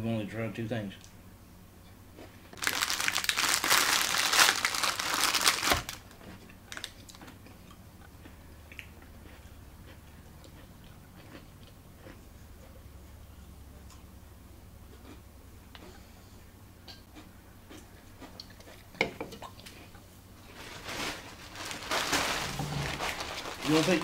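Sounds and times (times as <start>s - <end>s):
snack packaging crinkling: 2.6s - 7.3s, 20.4s - 24.0s.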